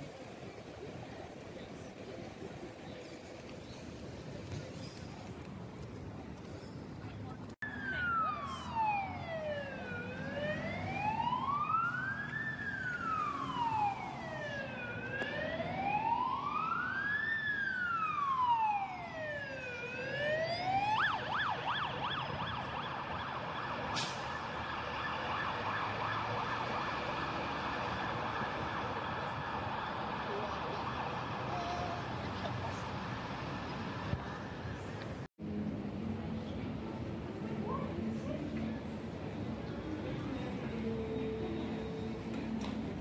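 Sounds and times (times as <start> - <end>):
fire engine siren wailing and yelping: 7.6 - 34.0.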